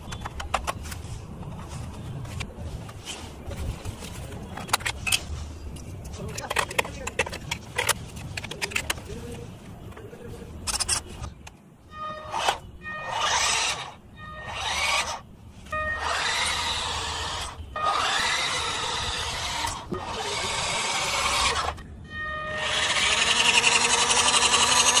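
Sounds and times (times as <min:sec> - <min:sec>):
electric toy motor whining: 0:12.0 - 0:15.2, 0:15.8 - 0:21.8, 0:22.4 - 0:25.0.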